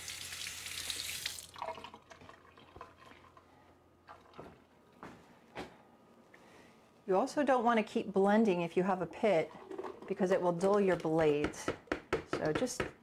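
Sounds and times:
kitchen tap running: 0.0s - 3.4s.

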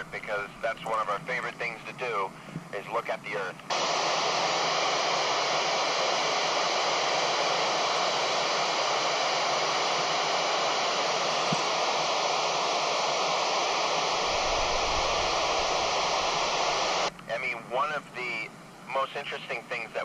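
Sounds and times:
radio static hiss: 0.0s - 20.0s.

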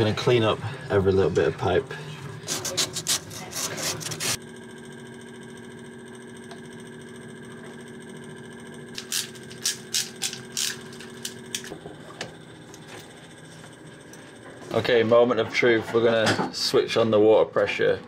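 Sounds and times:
steady hum: 0.0s - 18.0s
sanding pad rasping on copper pipe: 2.4s - 4.4s.

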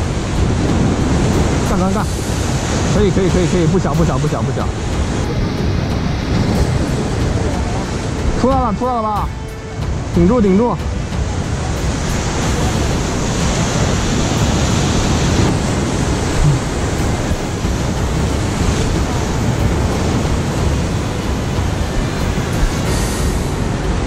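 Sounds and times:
ocean surf breaking on rocks: 0.0s - 24.0s
wind rumbling on microphone: 0.0s - 24.0s.

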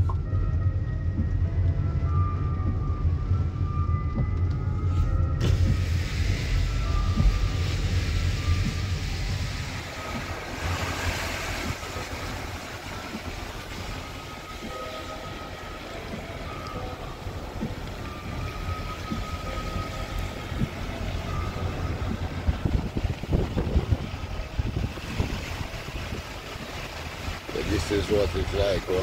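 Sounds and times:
car road and engine rumble: 0.0s - 29.0s.

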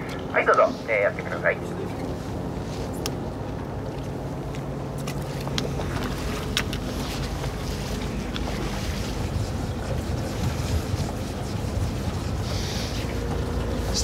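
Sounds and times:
boat engine idling: 0.0s - 14.0s
wind on microphone: 6.2s - 14.0s.

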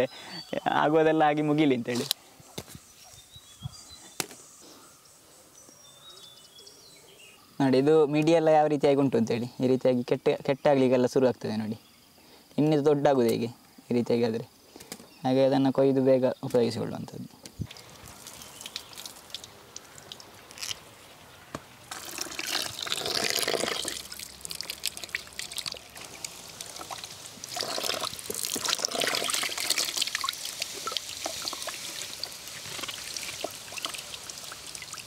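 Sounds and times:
water splashing and dripping: 17.7s - 21.0s, 21.9s - 35.0s
water draining off basket: 21.9s - 35.0s
water sloshing in bucket: 21.9s - 35.0s.

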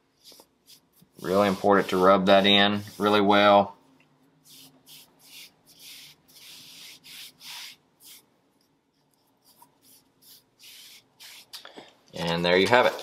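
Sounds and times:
hand rubbing tape on skin: 0.2s - 3.3s, 4.4s - 11.7s.

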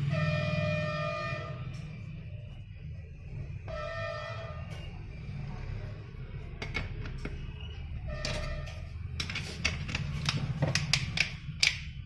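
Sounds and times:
low pulsing background music: 0.0s - 6.6s.

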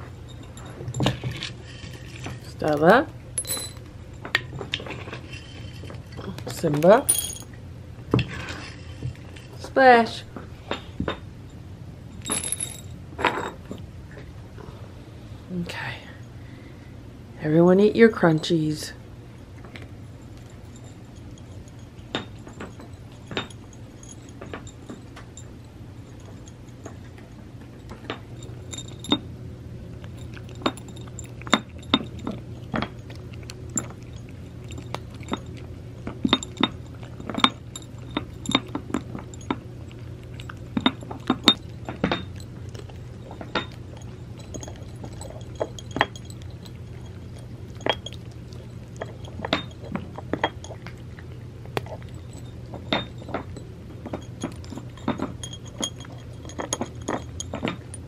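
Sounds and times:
clinks against ceramic saucers: 0.0s - 9.6s, 12.1s - 13.8s, 19.6s - 29.3s, 30.0s - 51.0s, 51.8s - 58.0s
cats crunching treats: 29.8s - 57.9s.

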